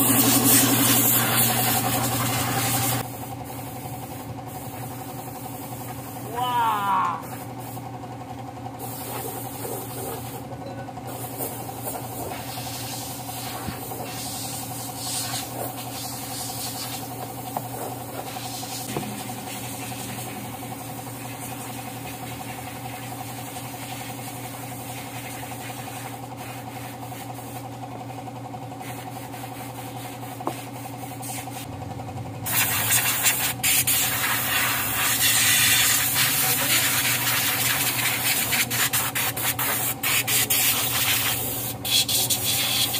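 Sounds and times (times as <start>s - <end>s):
air blow gun hissing: 0.0s - 5.8s, 12.4s - 17.2s, 32.5s - 42.9s
steady machine hum: 0.0s - 42.9s.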